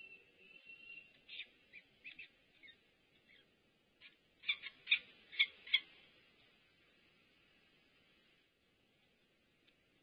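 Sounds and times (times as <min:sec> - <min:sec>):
falcon chicks chirping: 0:01.1 - 0:06.0.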